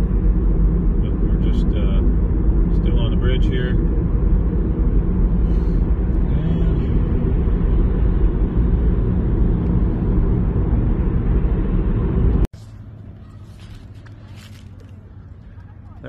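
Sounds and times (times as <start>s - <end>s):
road and tyre noise in car: 0.0s - 16.0s.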